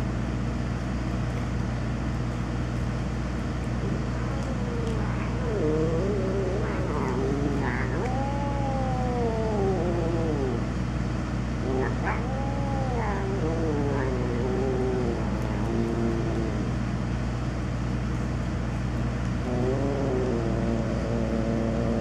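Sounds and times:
cat calling: 3.8s - 10.7s, 11.6s - 16.8s, 19.5s - 22.0s
transformer humming: 3.8s - 17.5s.

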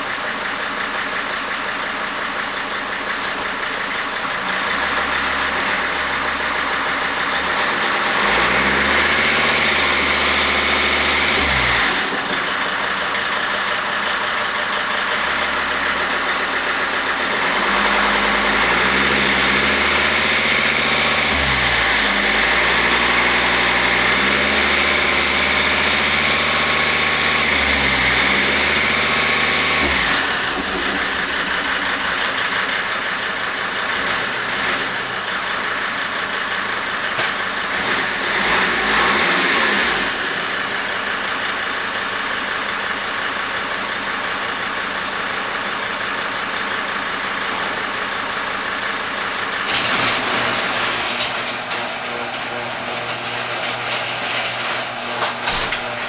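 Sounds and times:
diesel engine idling: 0.0s - 54.2s
high turbo whine: 4.3s - 35.9s.

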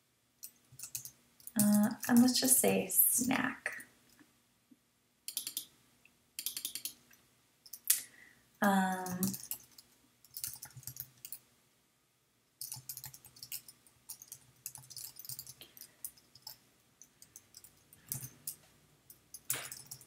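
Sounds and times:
typing on keyboard: 0.4s - 2.4s, 5.3s - 5.7s, 6.4s - 7.0s, 8.9s - 11.4s, 12.6s - 20.0s.

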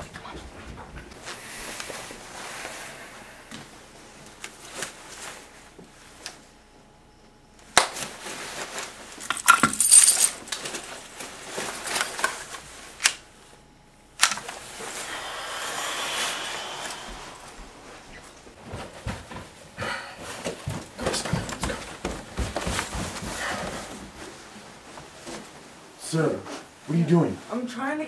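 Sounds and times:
small metal objects jangling: 9.2s - 10.4s.

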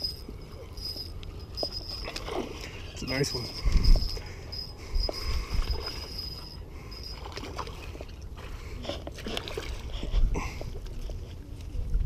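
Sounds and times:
fish splashing in water: 7.1s - 10.0s.

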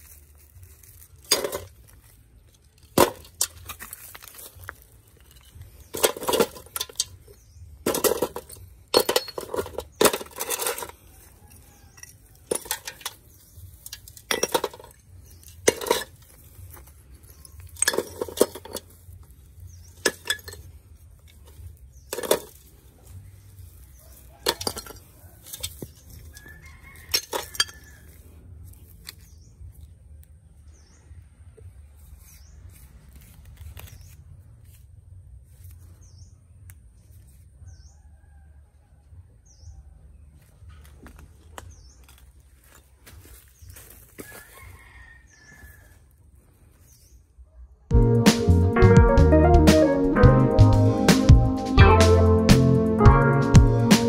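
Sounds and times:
rubble clattering against metal pot: 1.2s - 2.0s, 2.6s - 11.1s, 11.8s - 22.8s, 24.1s - 26.2s, 26.9s - 27.9s.

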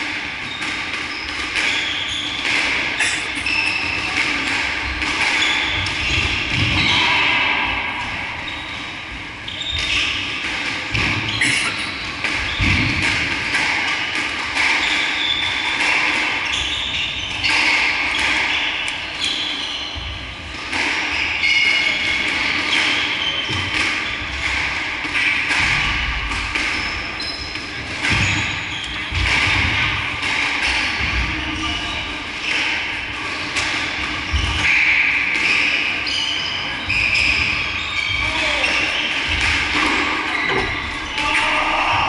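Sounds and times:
shoes squeaking on floor: 0.4s - 4.4s, 5.2s - 7.0s, 8.4s - 10.3s, 11.0s - 12.9s, 14.8s - 15.7s, 16.3s - 20.2s, 26.8s - 29.2s, 35.4s - 41.3s.

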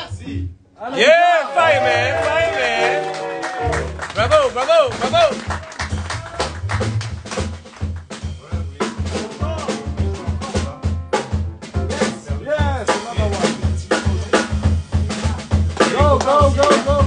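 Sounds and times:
jazz band playing: 1.6s - 17.0s
sharp drum hits: 4.3s - 17.0s.

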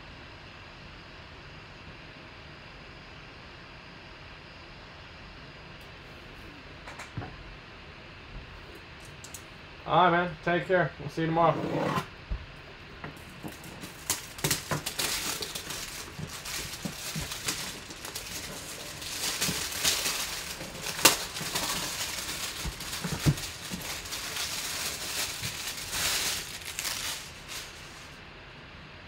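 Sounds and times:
plastic wrap crinkling and tearing: 13.2s - 28.2s.

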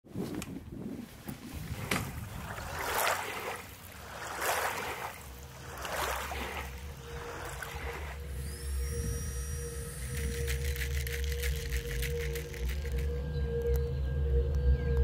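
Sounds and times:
small waves lapping on shore: 1.0s - 13.0s
music: 10.2s - 15.0s.

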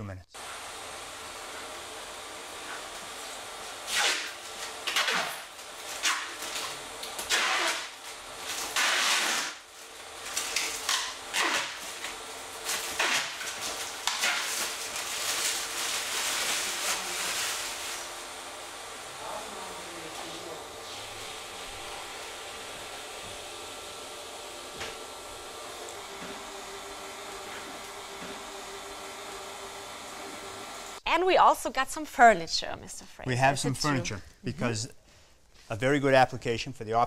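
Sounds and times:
plastic film being peeled off: 3.9s - 18.1s.

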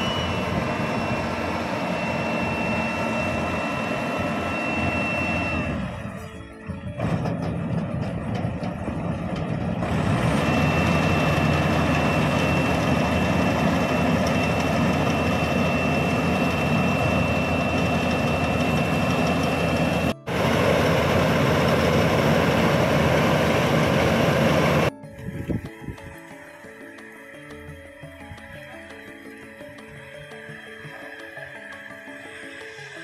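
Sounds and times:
combine harvester diesel engine: 0.0s - 24.9s.

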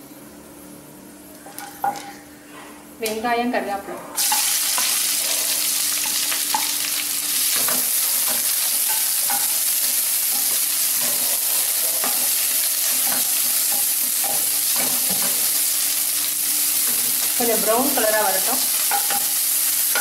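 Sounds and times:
frying hiss in oil: 4.2s - 20.0s.

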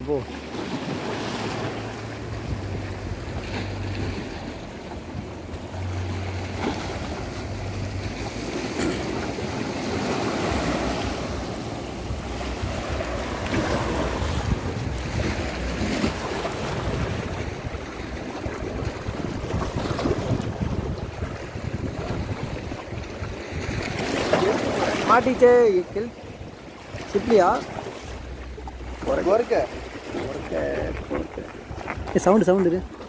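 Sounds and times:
waves washing against rocks: 0.0s - 33.0s
wind buffeting microphone: 0.8s - 33.0s
low hum: 1.6s - 20.8s, 27.8s - 32.1s.

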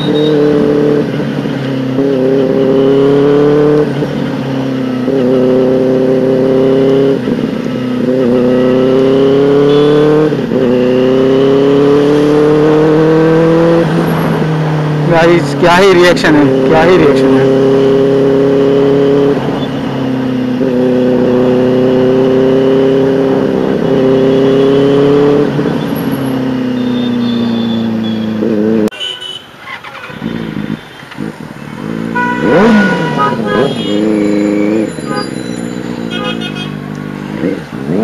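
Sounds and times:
motorcycle engine cruising: 0.0s - 28.9s, 29.6s - 38.0s
motorcycle engine rev: 0.0s - 28.9s, 29.6s - 38.0s.

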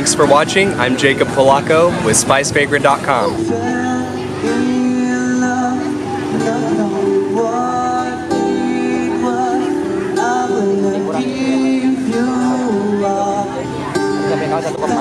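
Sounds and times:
acoustic guitars: 0.0s - 15.0s
man singing through microphone: 0.0s - 15.0s.

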